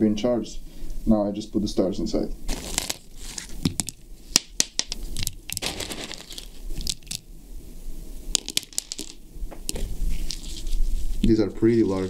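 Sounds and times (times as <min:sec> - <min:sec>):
rustling and crinkling: 0:02.5 - 0:07.3, 0:08.3 - 0:12.0.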